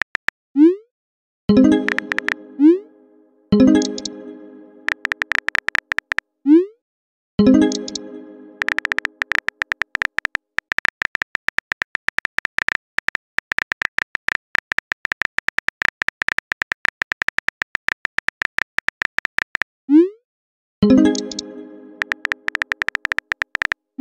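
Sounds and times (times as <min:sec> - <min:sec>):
phone keyboard key clicks: 0:00.0 - 0:00.3, 0:01.9 - 0:02.4, 0:04.9 - 0:06.2, 0:08.6 - 0:19.6, 0:22.0 - 0:23.8
chime ringing: 0:07.4 - 0:08.7.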